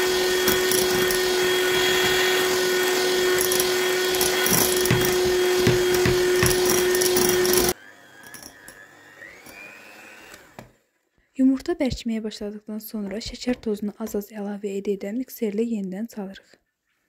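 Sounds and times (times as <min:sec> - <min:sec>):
electric hand mixer running: 0:00.0 - 0:10.8
beaters whipping in glass bowl: 0:03.2 - 0:08.7.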